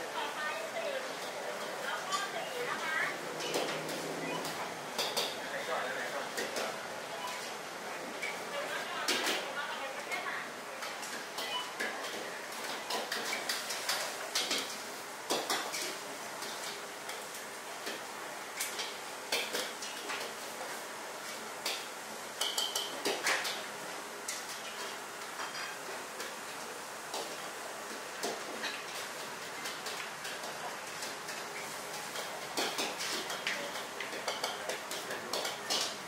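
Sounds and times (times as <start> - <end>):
frying hiss: 0.0 - 36.0.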